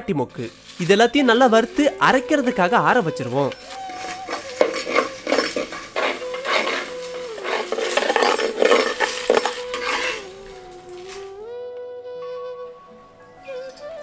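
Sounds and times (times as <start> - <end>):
soft background music: 0.0 - 14.0
spatula stirring rattling spices: 3.6 - 10.5.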